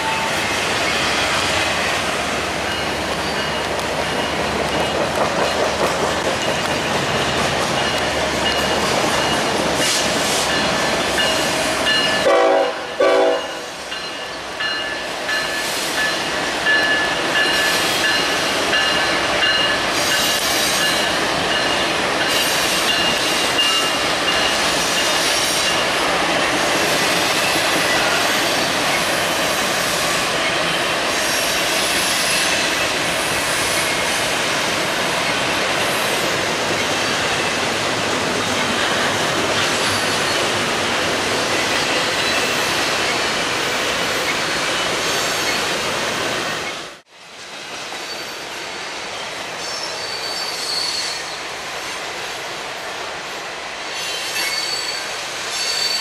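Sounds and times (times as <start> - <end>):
freight train wheel and rail noise: 0.0 - 56.0
high wheel squeal: 49.6 - 51.4, 54.0 - 56.0.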